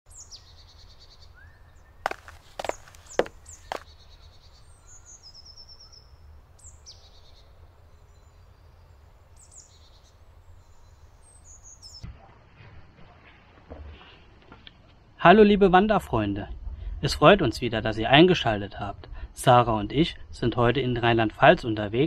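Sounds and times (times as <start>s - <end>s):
birds chirping and trilling: 0.1s - 12.0s.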